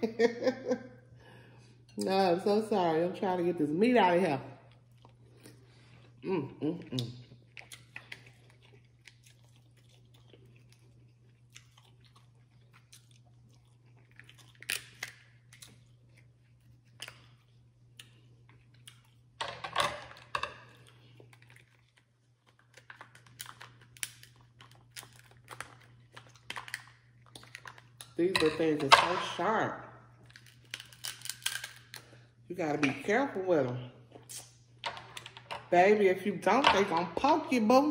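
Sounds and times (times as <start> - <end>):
chewing: 4.6 - 6.2, 6.8 - 19.4, 20.5 - 28.2
shellfish shells cracking: 13.8 - 15.8, 18.0 - 28.2, 30.2 - 32.2.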